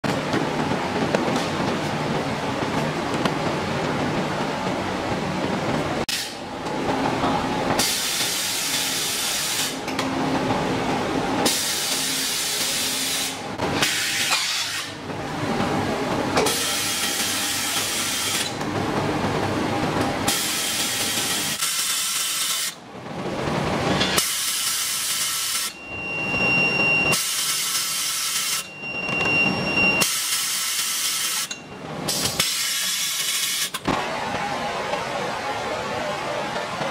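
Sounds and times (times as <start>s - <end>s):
steady machine noise: 0.0s - 36.9s
air hissing from machine: 7.8s - 9.8s, 11.4s - 14.9s, 27.1s - 28.7s.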